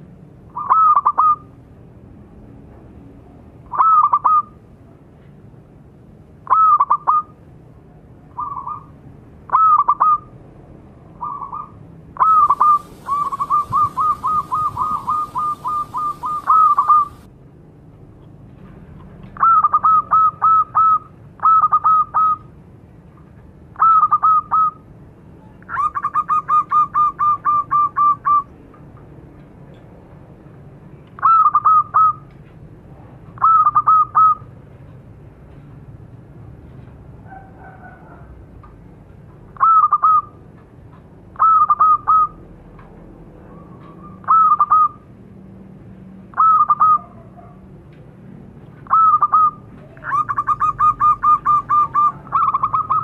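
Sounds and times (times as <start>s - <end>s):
dove cooing: 11.2s - 17.3s, 48.9s - 53.0s.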